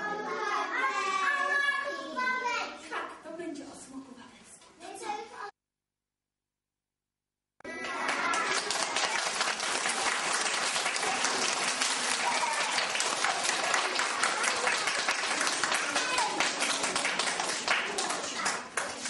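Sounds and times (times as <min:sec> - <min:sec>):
children's voices: 0:00.0 - 0:03.5, 0:04.7 - 0:05.5, 0:07.6 - 0:19.0
children clapping: 0:07.6 - 0:19.0.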